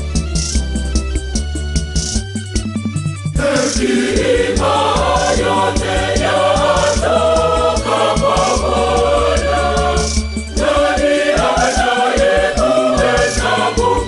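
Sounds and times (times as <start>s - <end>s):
instrumental accompaniment with beat: 0.0s - 14.0s
choir singing gospel: 3.4s - 14.0s.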